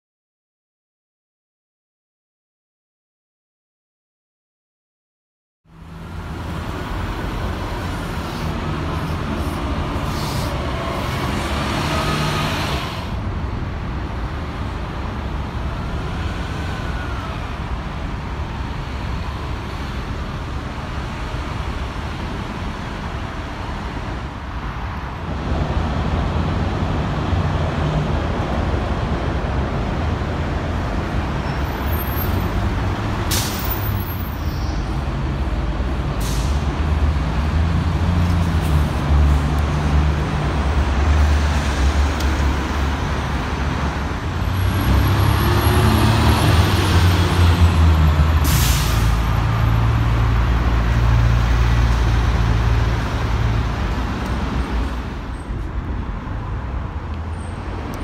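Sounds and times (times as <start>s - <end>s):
diesel bus engines droning: 5.7s - 58.0s
air brake hiss: 9.4s - 10.6s, 33.3s - 34.8s, 36.2s - 36.7s, 48.4s - 49.3s.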